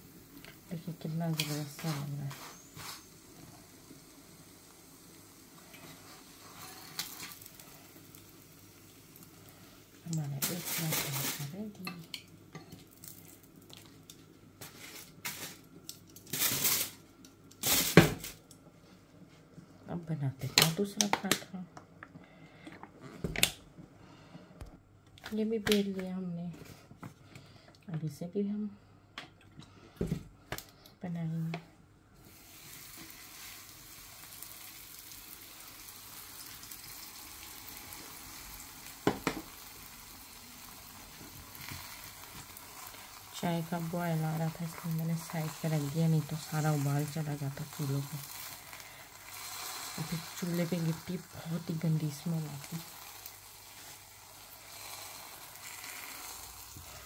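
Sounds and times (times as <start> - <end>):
food sizzling in pan: 0.0 - 18.3, 32.2 - 57.0
aluminium foil crinkling: 10.1 - 11.8, 12.8 - 18.5, 32.5 - 57.0.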